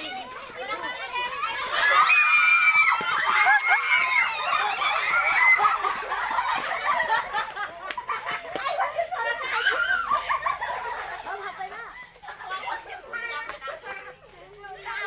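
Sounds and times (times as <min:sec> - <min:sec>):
children laughing and chattering: 0:00.0 - 0:15.0.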